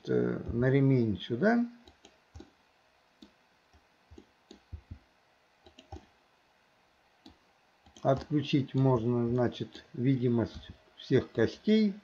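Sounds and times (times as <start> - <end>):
mouse and keyboard clicks: 1.8 - 2.6, 3.2 - 5.0, 5.6 - 6.1, 7.2 - 9.8.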